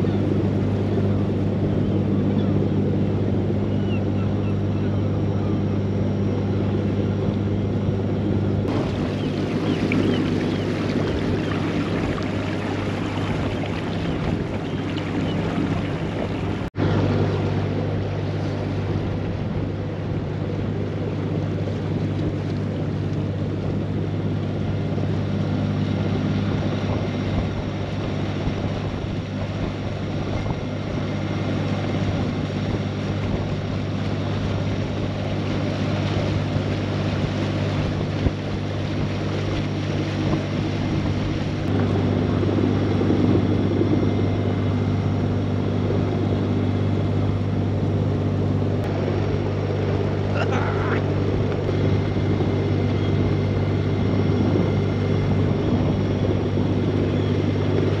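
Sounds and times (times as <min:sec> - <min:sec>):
boat engine running: 0:00.0 - 0:58.0
wind on microphone: 0:00.0 - 0:58.0.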